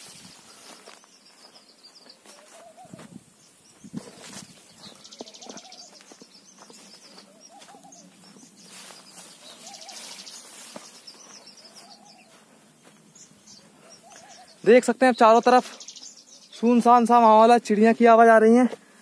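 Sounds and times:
higher bird chirps: 0.0 - 18.2
insects buzzing: 0.0 - 19.0.

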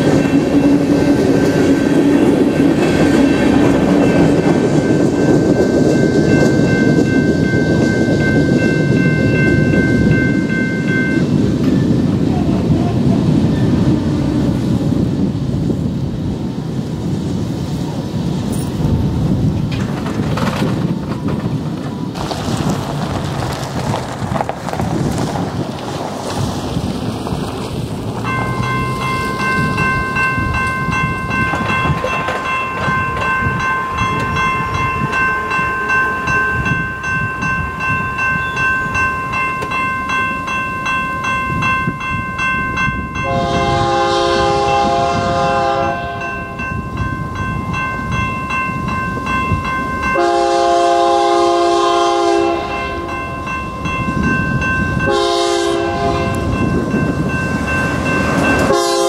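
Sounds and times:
railroad crossing bell ringing: 0.0 - 15.7, 28.2 - 59.0
passing train rumble: 0.0 - 59.0
locomotive air horn: 43.2 - 46.3, 50.2 - 53.1, 55.0 - 56.5, 58.7 - 59.0.

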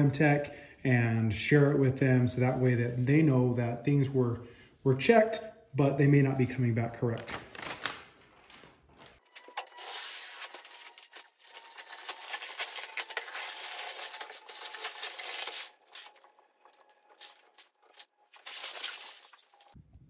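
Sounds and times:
plastic film being peeled off: 7.3 - 19.8.

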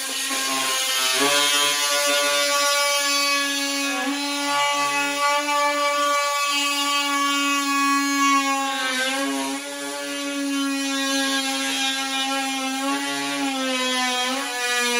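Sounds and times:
cordless drill cutting wood: 0.0 - 14.9.

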